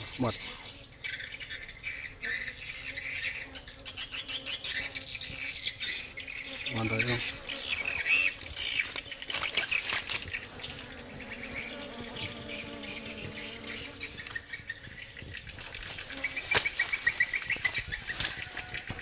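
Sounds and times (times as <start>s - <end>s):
bees buzzing: 1.4s - 19.0s
high insect chirping: 6.0s - 19.0s
rustling brush: 7.2s - 12.3s, 15.5s - 19.0s.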